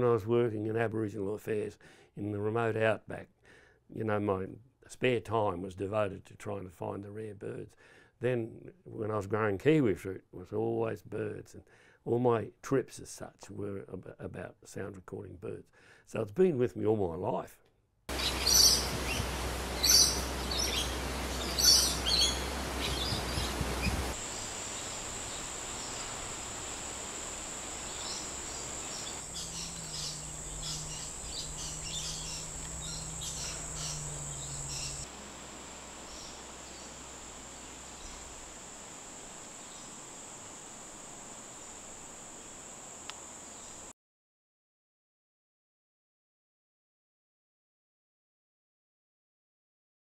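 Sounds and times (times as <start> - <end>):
wild birds calling: 18.1 - 40.2
high-pitched insect drone: 18.1 - 43.9.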